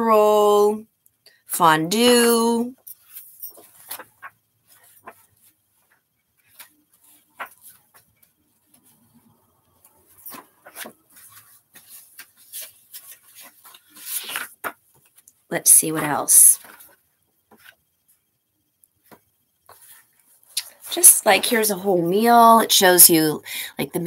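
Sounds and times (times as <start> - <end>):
book pages turning: 3.0 - 15.3, 16.0 - 18.0, 19.0 - 20.8.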